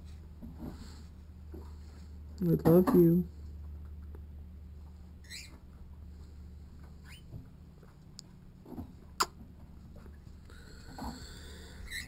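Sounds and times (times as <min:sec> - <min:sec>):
steady low hum: 0:00.0 - 0:12.0
cockatiel squeaking: 0:05.2 - 0:05.6.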